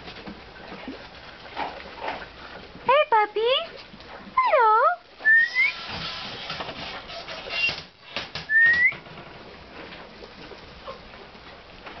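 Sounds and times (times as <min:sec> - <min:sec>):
soft scratchy rustling: 0:00.0 - 0:04.4
person whistling rising notes: 0:05.2 - 0:05.8, 0:08.5 - 0:09.0.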